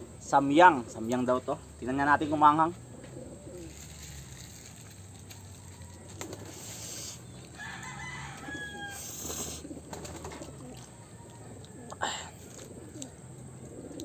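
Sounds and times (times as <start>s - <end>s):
rooster crowing: 5.3s - 6.7s, 7.5s - 9.5s, 10.8s - 12.0s.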